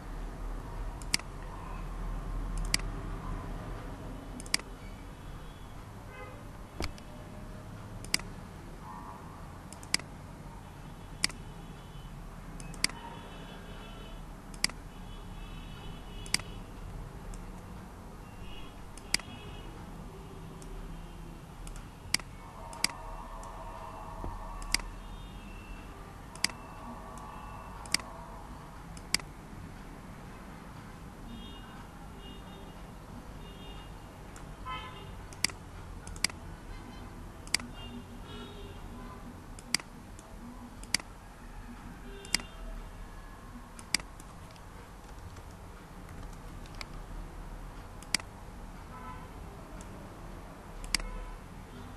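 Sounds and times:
computer mouse clicking: 1.0 - 1.6, 2.5 - 3.0, 4.4 - 4.8, 6.8 - 7.1, 7.8 - 8.4, 9.7 - 10.2, 11.2 - 11.4, 12.6 - 13.0, 14.5 - 14.8, 16.2 - 17.8, 18.9 - 19.4, 21.6 - 23.6, 24.2 - 25.0, 25.8 - 28.2, 28.8 - 29.4, 35.3 - 36.4, 37.4 - 37.8, 39.6 - 41.2, 42.2 - 42.6, 43.7 - 47.1, 47.8 - 48.4, 50.8 - 51.2.

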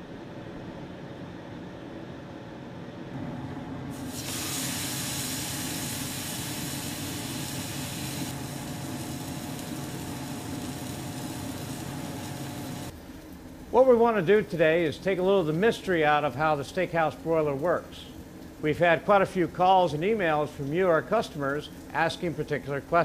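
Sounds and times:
steady low hum: 0.0 - 23.0
steak sizzling: 3.9 - 12.9.

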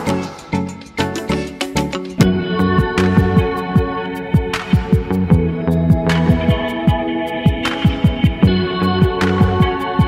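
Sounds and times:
held synth chords: 0.0 - 10.0
deep kick drums: 2.2 - 10.0.

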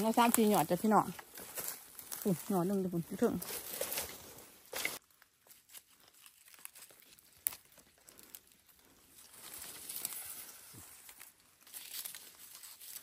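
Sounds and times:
leaves and stems rustling: 0.0 - 13.0
stem snapping: 6.0 - 8.4.

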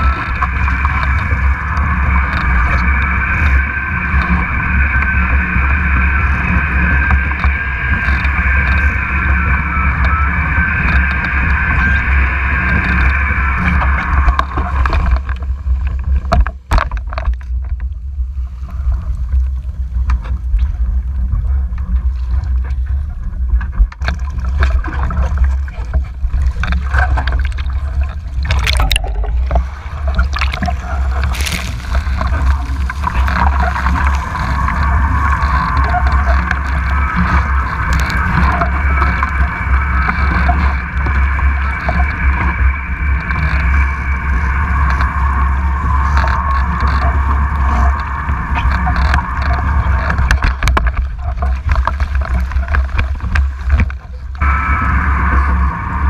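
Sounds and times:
water rushing past hull: 0.0 - 56.0
loud splash: 26.4 - 50.6.

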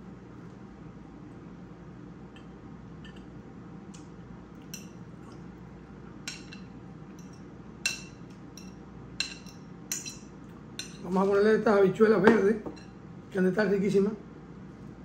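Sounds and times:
low background hum: 0.0 - 15.0
fork clinking on ceramic bowl: 6.3 - 11.1.

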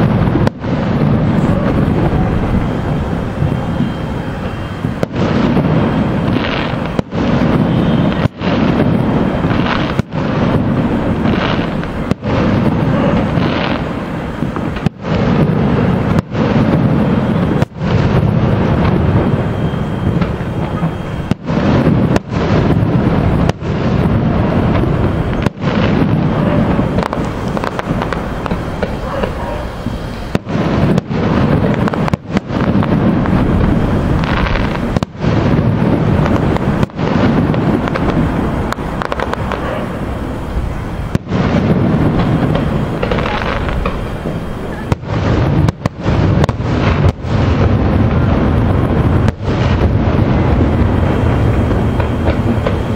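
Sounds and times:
fireworks bursting: 0.0 - 52.9.

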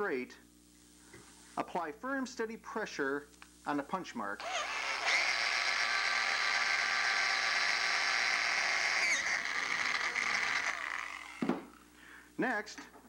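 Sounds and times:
electric drill cutting metal: 4.4 - 11.6.

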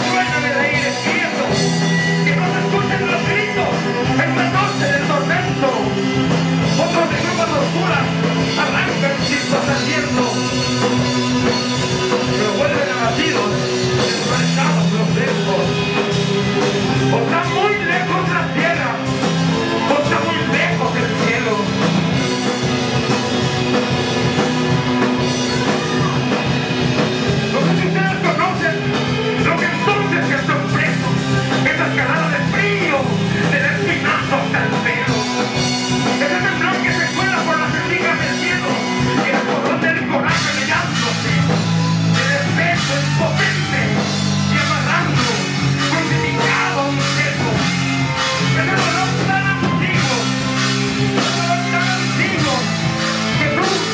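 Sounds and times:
drum kit: 0.0 - 53.9
electric guitar: 0.0 - 53.9.

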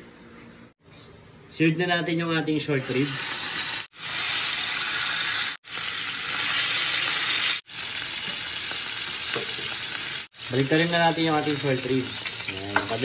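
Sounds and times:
meat sizzling in a frying pan: 2.8 - 13.0.

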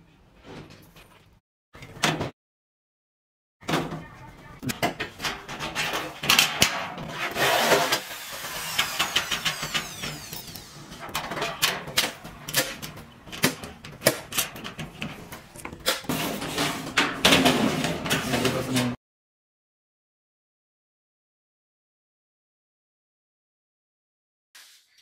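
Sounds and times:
power drill whine: 7.4 - 11.2.

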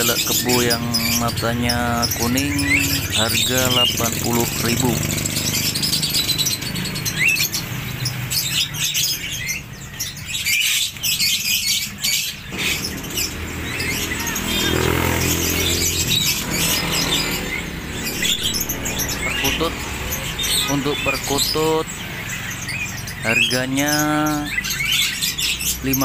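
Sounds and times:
birds chirping and calling: 0.0 - 26.0
steady low rumble: 16.0 - 21.5.

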